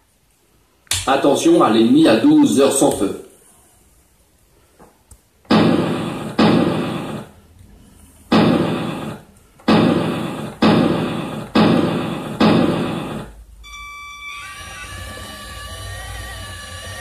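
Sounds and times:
gunshot sound effect: 5.5s - 7.4s, 8.3s - 13.4s.

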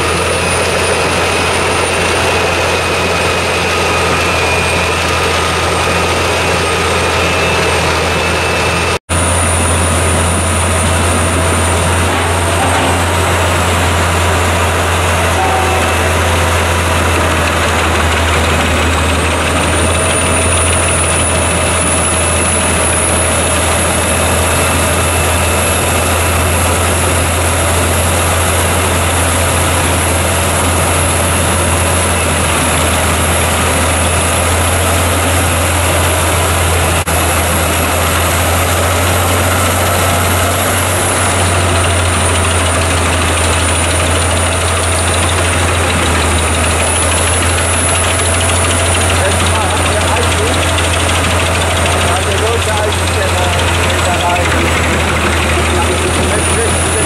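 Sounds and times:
high whine: 0.0s - 57.0s
wood chipper chipping logs: 0.0s - 57.0s.

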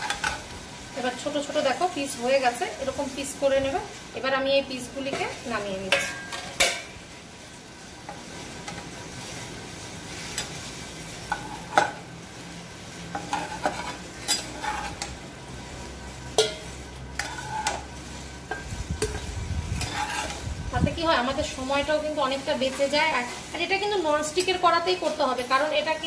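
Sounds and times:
metal spatula scraping a pan: 0.0s - 0.5s, 10.1s - 12.1s, 13.0s - 15.2s, 16.1s - 21.8s
oil sizzling in a pan: 0.0s - 26.0s.

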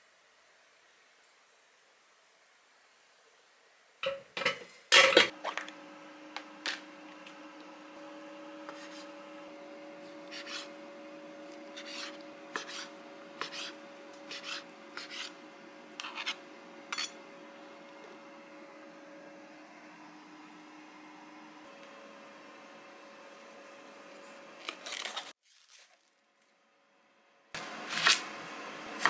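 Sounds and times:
air fryer basket clatter: 4.0s - 5.6s
air fryer fan humming: 4.0s - 25.2s, 27.6s - 29.0s
knife chopping on cutting board: 11.8s - 15.4s.

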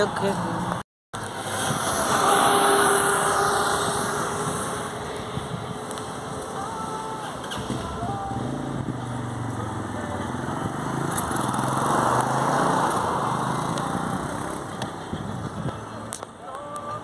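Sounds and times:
rush of noise: 1.2s - 9.2s.

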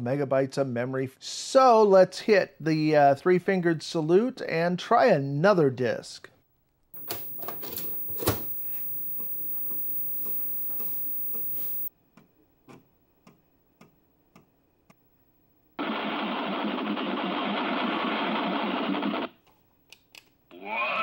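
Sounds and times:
faint hum: 7.0s - 11.9s
floppy drive buzzing grind: 7.0s - 11.9s
floppy drive clicking: 7.0s - 11.9s.

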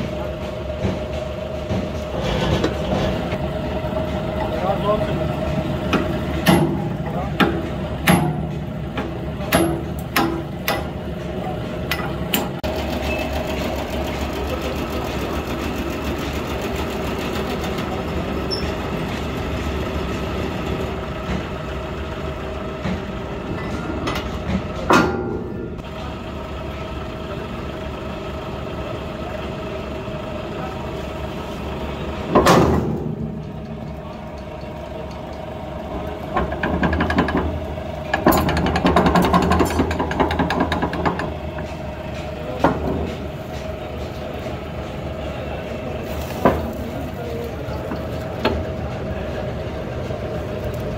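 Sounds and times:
workshop machine humming: 0.0s - 50.9s
sharp metal clanks: 6.4s - 11.0s.

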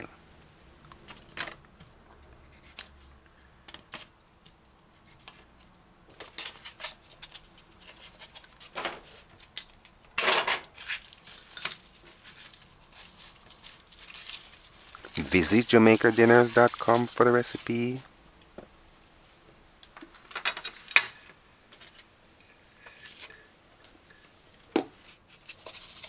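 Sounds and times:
onion skins rustling: 10.7s - 18.1s
scraping rustle: 10.8s - 18.1s, 24.2s - 26.0s.

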